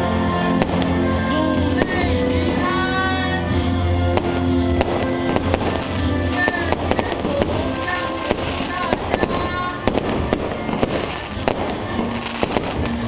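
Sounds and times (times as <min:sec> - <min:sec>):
music playing: 0:00.0 - 0:13.0
firework bangs and crackles: 0:00.1 - 0:13.0
firework shells bursting: 0:04.1 - 0:13.0.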